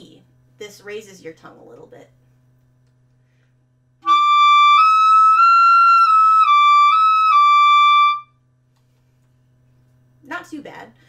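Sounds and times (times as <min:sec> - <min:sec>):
clarinet playing high notes: 0:04.0 - 0:08.3.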